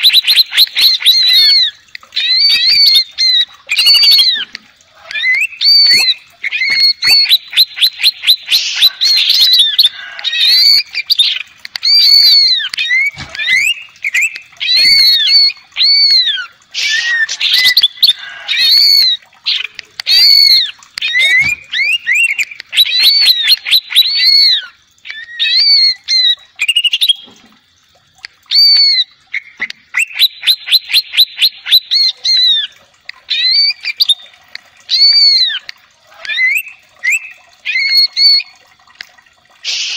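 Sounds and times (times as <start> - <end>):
bird singing whistled notes: 20.1 - 27.3.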